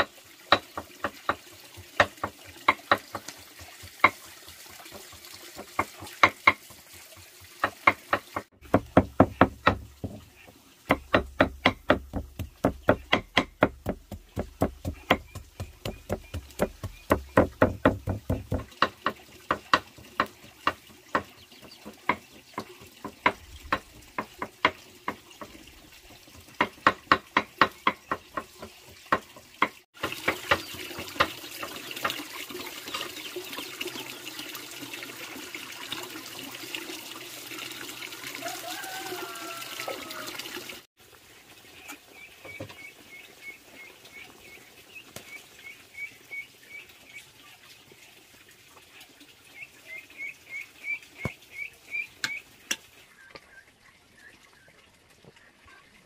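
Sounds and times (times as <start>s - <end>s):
water running from pipe: 0.0s - 55.7s
knife chopping on wooden board: 7.6s - 10.2s, 10.9s - 20.3s.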